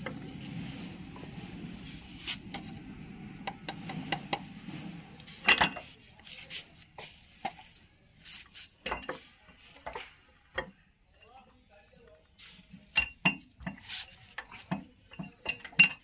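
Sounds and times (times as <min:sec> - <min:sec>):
metal tools clinking and knocking: 0:05.3 - 0:06.3, 0:08.8 - 0:16.0.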